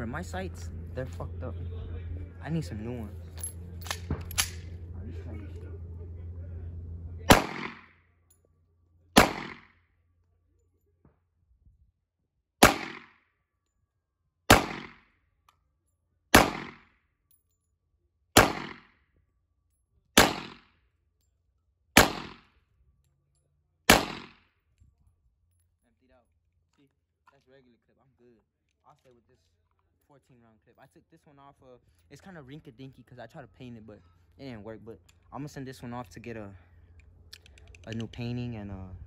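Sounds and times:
pistol shots: 0:07.3 - 0:07.9, 0:09.2 - 0:09.7, 0:12.6 - 0:13.2, 0:14.5 - 0:15.0, 0:16.3 - 0:16.9, 0:18.4 - 0:18.9, 0:20.2 - 0:20.6, 0:22.0 - 0:22.5, 0:23.9 - 0:24.4.

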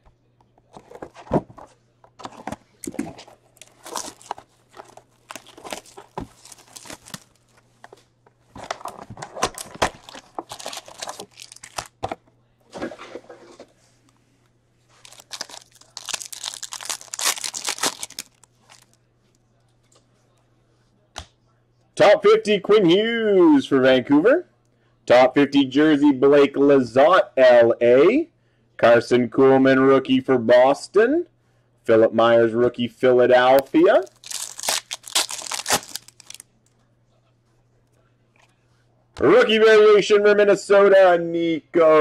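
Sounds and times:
foil pack crinkling: 0:03.5 - 0:07.6, 0:08.6 - 0:12.0, 0:15.0 - 0:19.0, 0:34.0 - 0:36.4.

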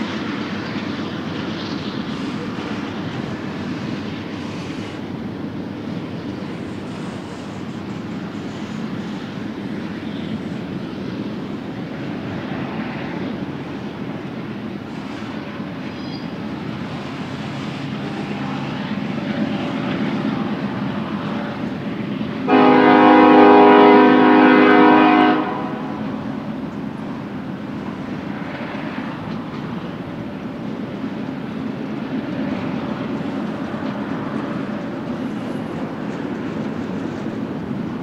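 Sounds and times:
freight train cars rumbling: 0:00.0 - 0:38.0
locomotive air horn blast: 0:22.4 - 0:26.2.

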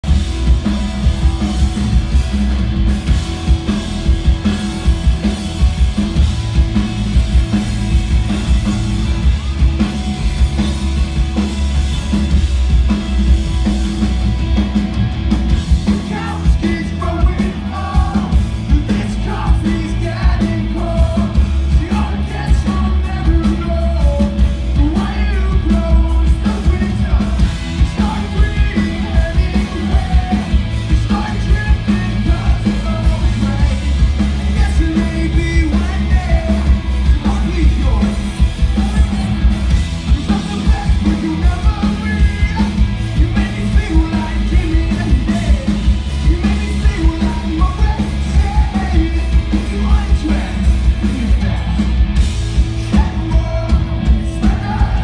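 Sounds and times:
live rock band playing: 0:00.0 - 0:55.0
man singing: 0:15.8 - 0:52.0, 0:52.6 - 0:55.0.

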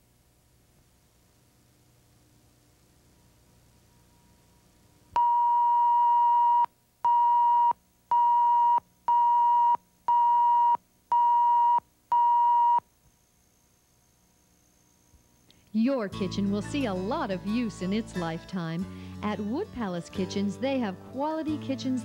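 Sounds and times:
electronic test-tone beeps: 0:05.2 - 0:12.8.

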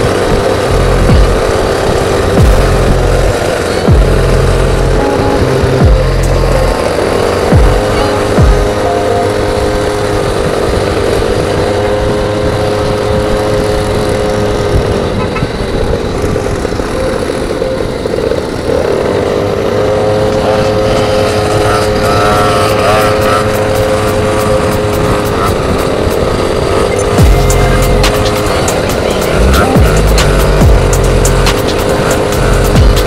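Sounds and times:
small scooter engine revving high: 0:00.0 - 0:33.0
wind and road noise: 0:00.0 - 0:33.0.

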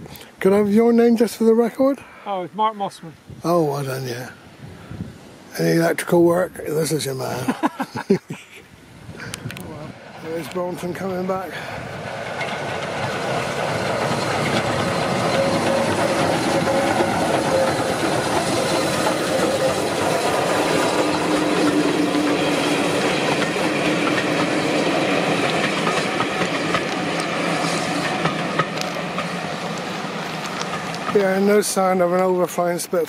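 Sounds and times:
train wheels clattering on rails: 0:10.2 - 0:32.6.

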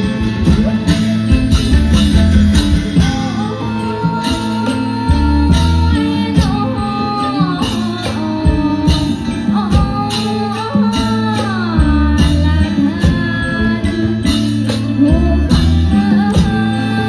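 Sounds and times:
drums beating: 0:00.0 - 0:17.0
person singing: 0:02.9 - 0:17.0.

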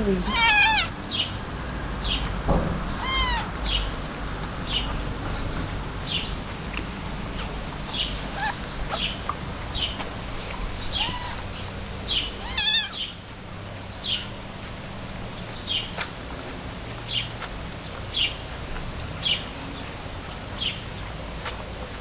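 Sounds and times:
kittens mewing: 0:00.0 - 0:00.9, 0:03.0 - 0:03.6, 0:08.2 - 0:09.1, 0:10.9 - 0:11.6, 0:12.3 - 0:13.1.

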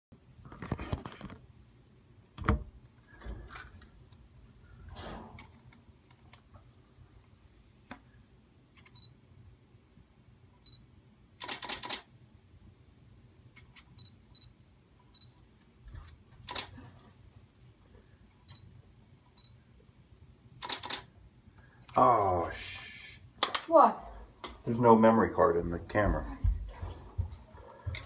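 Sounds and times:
camera shutter clicking: 0:11.4 - 0:12.1, 0:20.6 - 0:21.1
faint high beeps: 0:15.1 - 0:15.4.

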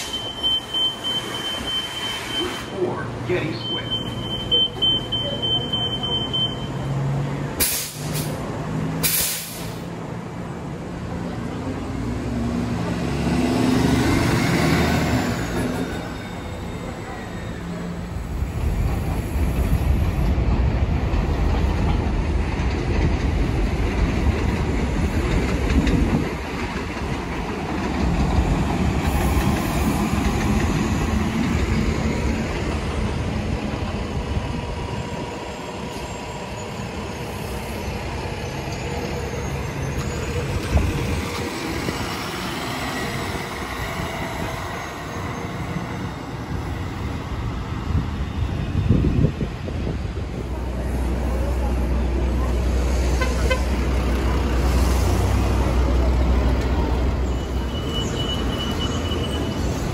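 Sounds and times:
bus engine running: 0:16.7 - 0:59.9.

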